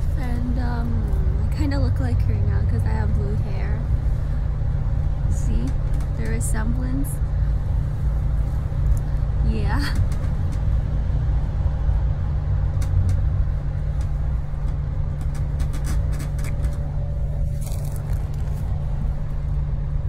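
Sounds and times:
vehicle rumble from inside cabin: 0:00.0 - 0:20.0
light clicks and rustles: 0:12.7 - 0:19.5.

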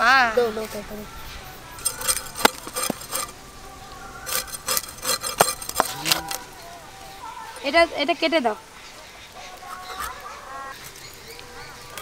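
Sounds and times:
fish scraping against blade: 0:01.8 - 0:03.4, 0:04.2 - 0:06.4.

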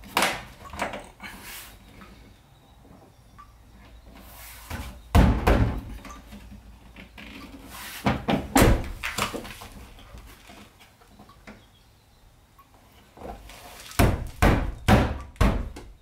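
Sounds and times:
heavy thumps on van body: 0:05.1 - 0:06.0, 0:14.0 - 0:15.9.

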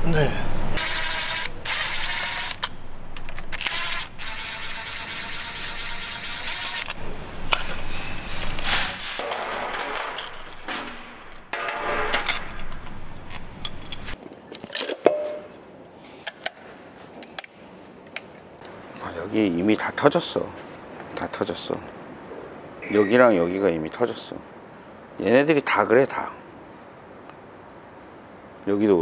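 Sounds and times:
impact driver running: 0:00.8 - 0:02.6, 0:03.6 - 0:07.0
metal clank: 0:07.5 - 0:13.0.

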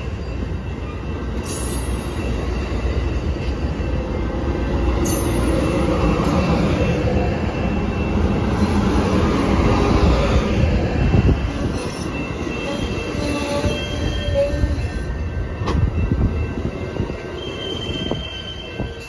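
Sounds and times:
high wheel squeals: 0:00.0 - 0:19.0
train wheels rumbling over rails: 0:00.0 - 0:19.0.

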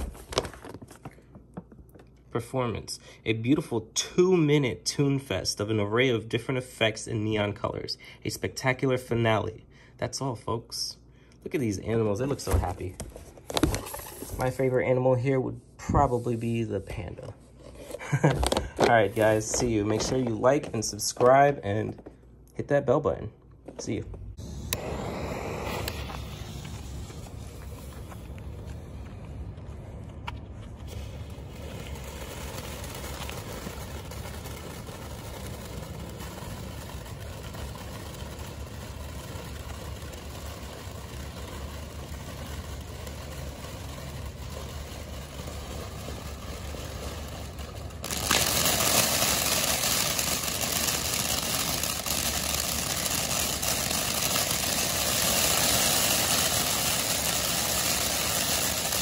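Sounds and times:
firework fountain hissing: 0:12.3 - 0:14.6, 0:17.8 - 0:19.9, 0:24.3 - 0:29.1, 0:30.8 - 0:59.0.

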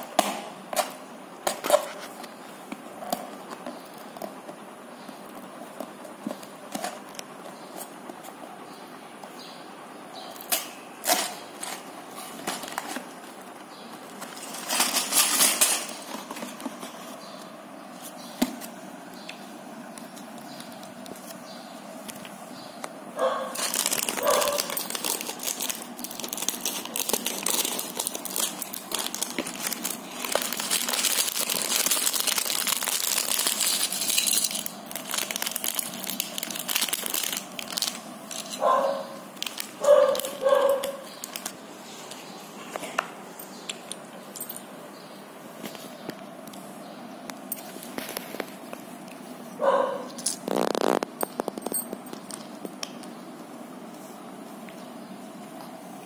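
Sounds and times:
plastic bag crinkling: 0:23.2 - 0:41.6, 0:50.2 - 0:52.6
packaging being opened: 0:23.4 - 0:38.7, 0:39.4 - 0:41.6, 0:50.1 - 0:53.0.

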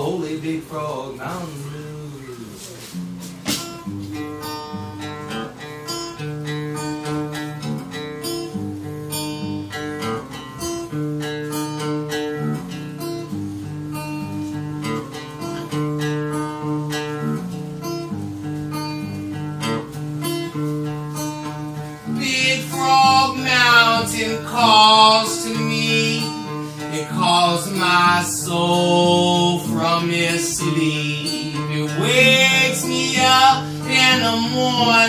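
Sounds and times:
man singing: 0:00.0 - 0:02.7, 0:22.0 - 0:35.0
acoustic guitar strumming: 0:00.0 - 0:35.0.

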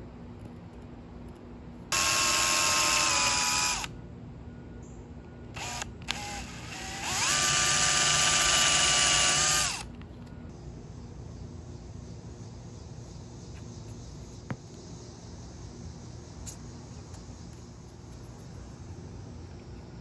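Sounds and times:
power drill whining: 0:01.9 - 0:03.9, 0:05.6 - 0:09.9.

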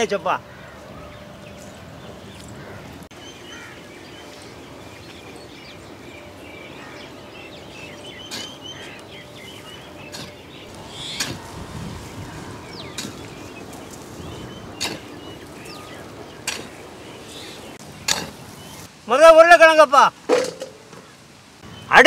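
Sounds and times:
outdoor background noise: 0:00.0 - 0:22.0
short bird calls: 0:07.8 - 0:18.9.

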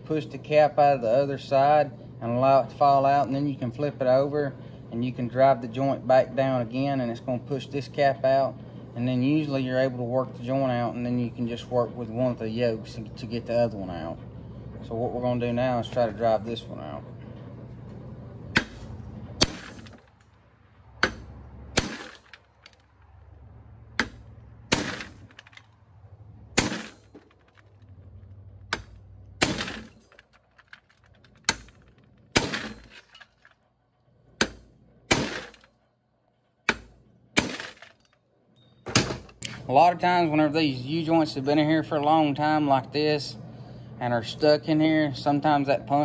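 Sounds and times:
hammer striking steel rod: 0:21.0 - 0:22.3.

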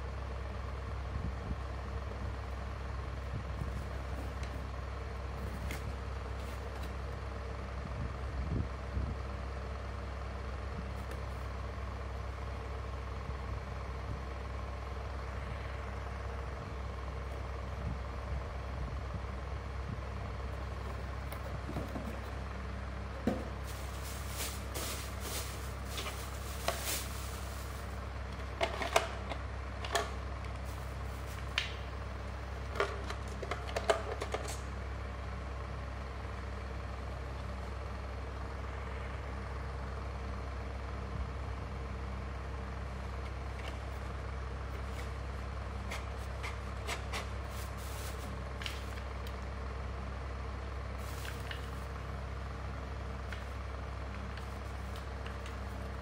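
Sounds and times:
steady low hum: 0:00.0 - 0:56.0
plastic wrapping crinkling: 0:23.6 - 0:28.0.

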